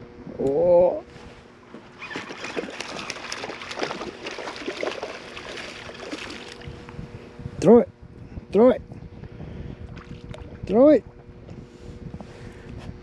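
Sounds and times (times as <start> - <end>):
water sloshing and splashing: 1.7 - 6.8, 9.8 - 10.7.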